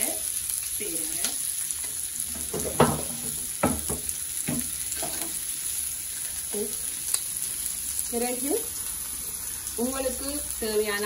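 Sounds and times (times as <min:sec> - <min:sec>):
onions sizzling in oil: 0:00.0 - 0:11.0
knocks on wok: 0:02.3 - 0:05.2.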